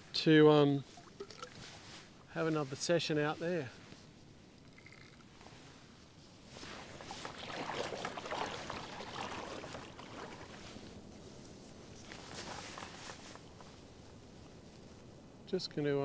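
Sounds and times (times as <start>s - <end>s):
legs wading through water: 0.9s - 2.2s, 6.4s - 14.2s.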